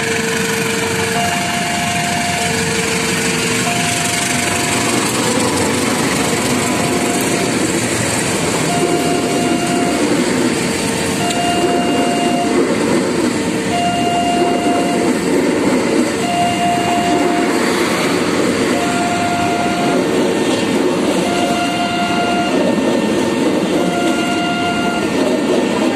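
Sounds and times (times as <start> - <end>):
diesel locomotive passing: 0.0 - 25.9
train wheels rumbling on rails: 0.0 - 25.9
two-tone signal: 1.1 - 5.4, 6.2 - 7.8, 8.6 - 12.8, 13.6 - 15.2, 16.2 - 18.0, 18.7 - 20.2, 21.1 - 22.8, 23.7 - 25.3.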